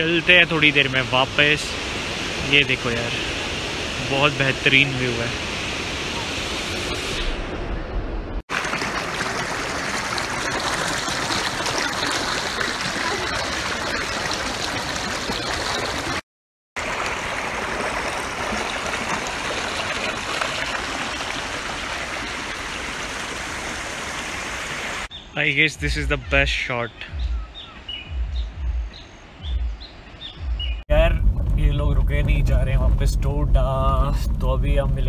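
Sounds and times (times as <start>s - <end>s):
stream rushing over rocks: 8.5s - 16.2s, 16.8s - 25.1s.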